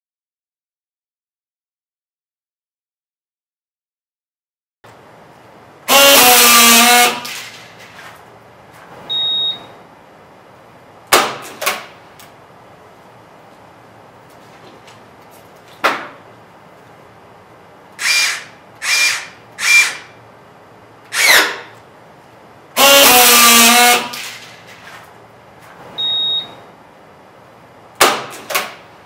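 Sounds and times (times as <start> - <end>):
buzzing friction weld: 5.9 - 8.0, 18.0 - 20.2, 21.1 - 21.8, 22.8 - 24.8
short high beep: 9.1 - 9.7, 26.0 - 26.6.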